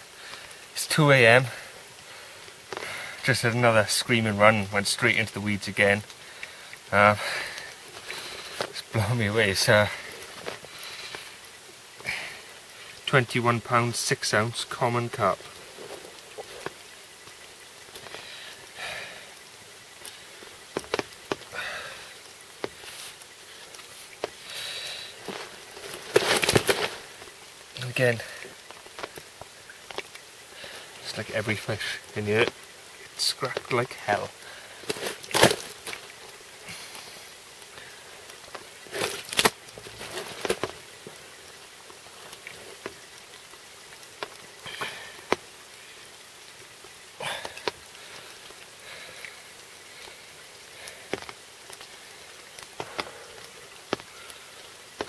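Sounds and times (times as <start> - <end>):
rain falling: 0.0 - 55.0
soft breaths: 1.4 - 3.4, 6.1 - 13.1, 15.3 - 27.4, 28.0 - 31.1, 47.1 - 55.0
rustling: 14.6 - 18.8, 20.0 - 31.2, 33.2 - 45.5.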